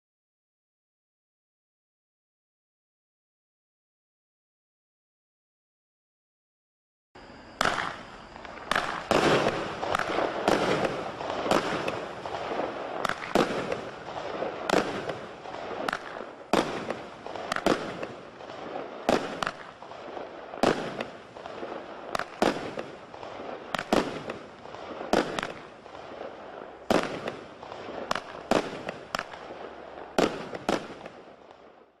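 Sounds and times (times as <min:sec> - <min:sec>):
fireworks reports: 0:07.2 - 0:31.9.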